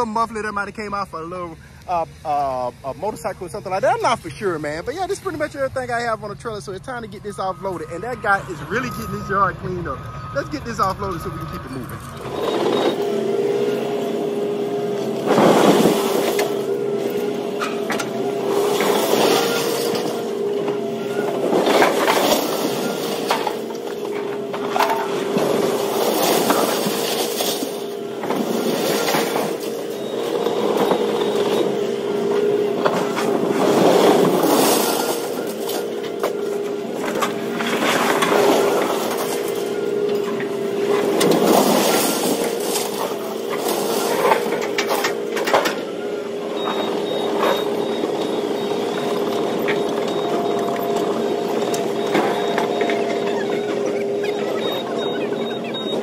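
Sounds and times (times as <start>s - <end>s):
engine hum: 0.0s - 56.0s
scrap metal scraping and clattering: 17.6s - 20.4s, 21.3s - 31.7s, 32.8s - 45.8s.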